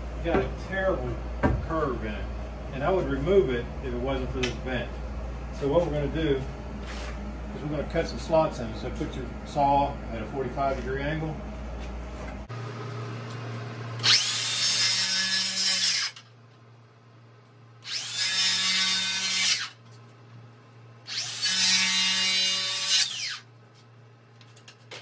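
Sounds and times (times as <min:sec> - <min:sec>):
circular saw cutting wood: 0:14.0 - 0:16.2, 0:17.8 - 0:19.8, 0:21.1 - 0:23.4.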